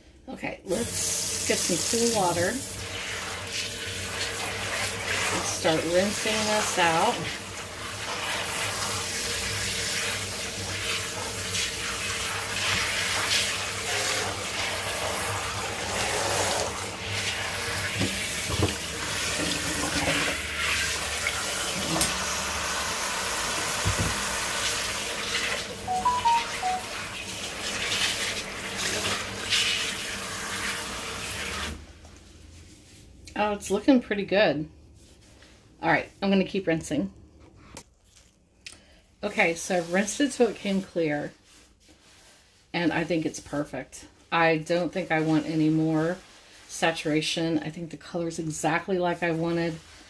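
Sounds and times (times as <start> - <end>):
tap running into bowl and sink: 17.9 - 20.4, 21.7 - 22.2, 23.5 - 24.4.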